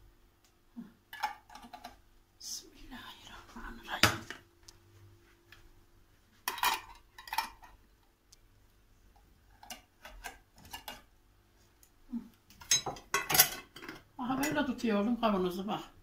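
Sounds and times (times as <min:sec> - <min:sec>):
glass jars clinking on counter: 0:12.6 - 0:14.0.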